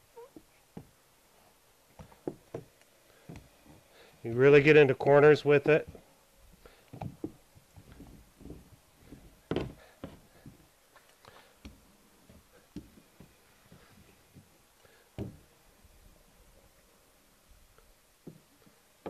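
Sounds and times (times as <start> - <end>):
rubber roller knocking on foam: 7.0 - 10.6.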